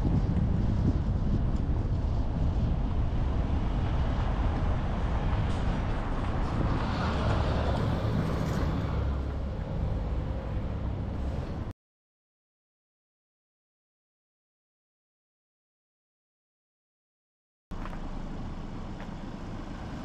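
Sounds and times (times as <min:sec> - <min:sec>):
car engine and tyre noise: 0:00.0 - 0:11.7, 0:17.7 - 0:20.0
wind on microphone: 0:00.0 - 0:11.7.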